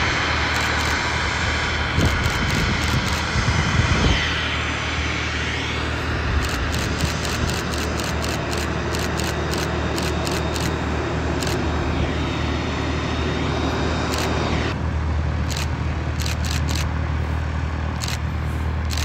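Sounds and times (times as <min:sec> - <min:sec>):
faint high whine: 0:00.0 - 0:14.8
jet engines rushing: 0:00.0 - 0:19.0
low hum: 0:00.0 - 0:19.0.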